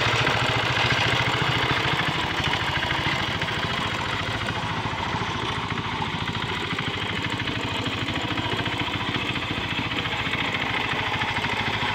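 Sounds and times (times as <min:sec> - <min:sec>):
hand tractor engine pulsing: 0:00.0 - 0:11.9.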